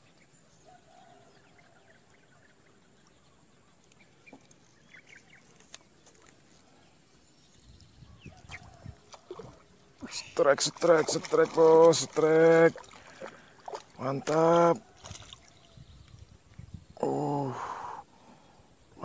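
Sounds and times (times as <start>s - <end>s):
soft bird chirps: 0.0s - 10.4s, 14.8s - 17.5s.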